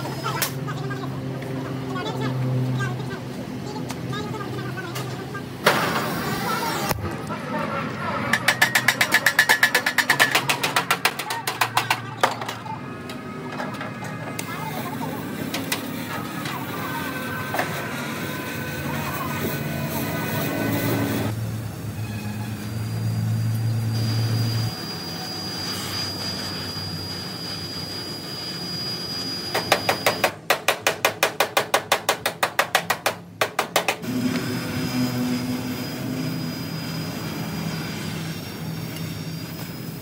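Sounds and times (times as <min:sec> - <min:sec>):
steady workshop hum: 0:00.0 - 0:40.0
rapid sharp hammering: 0:08.4 - 0:12.1, 0:29.6 - 0:34.1.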